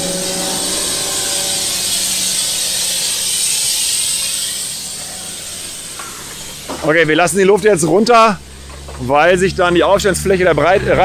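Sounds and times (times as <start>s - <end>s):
compressed air hissing from tyres: 0.0s - 7.2s.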